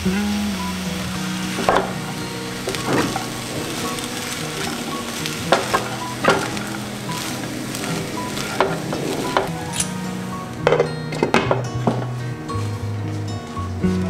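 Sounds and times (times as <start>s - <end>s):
fried rice sizzling: 0.0s - 14.0s
spatula scraping and knocking wok: 0.8s - 12.2s.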